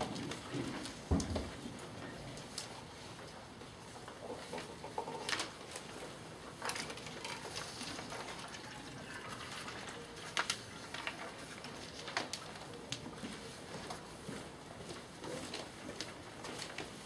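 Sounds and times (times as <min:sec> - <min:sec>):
paper rustling: 0:09.4 - 0:14.0.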